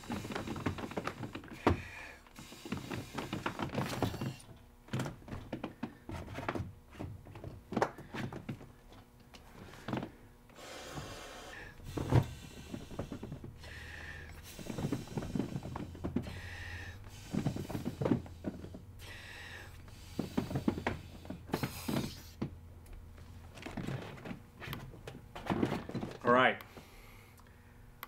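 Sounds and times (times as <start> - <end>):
person blowing through hose: 21.5 - 22.4
handling knocks: 23.5 - 26.4.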